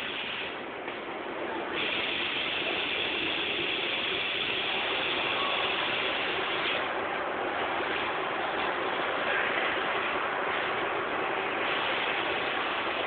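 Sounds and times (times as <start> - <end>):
high hiss: 1.7 - 6.9.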